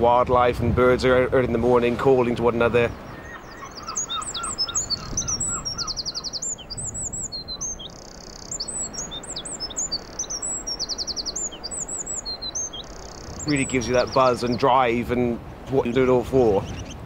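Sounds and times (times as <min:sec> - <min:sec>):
lower repeated bird notes: 0:02.8 - 0:14.8
wren singing with trills: 0:02.8 - 0:14.9, 0:16.4 - 0:17.0.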